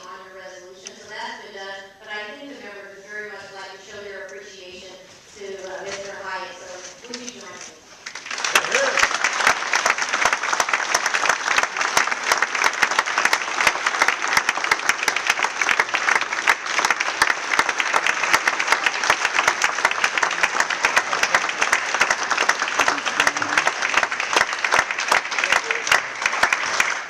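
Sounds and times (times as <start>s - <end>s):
crowd applauding: 8.0s - 27.0s
sharp individual claps: 8.0s - 27.0s.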